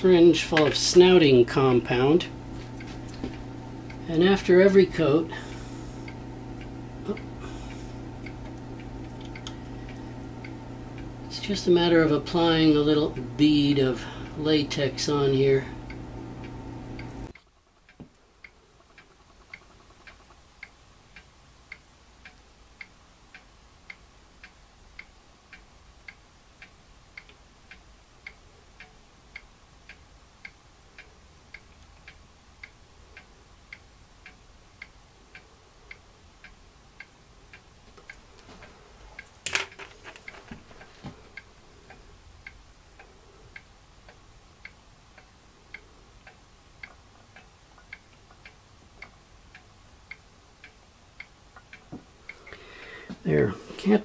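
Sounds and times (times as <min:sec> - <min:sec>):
mechanical clock ticking: 0:00.0 - 0:54.0
small clicks: 0:06.0 - 0:11.1, 0:31.6 - 0:52.6.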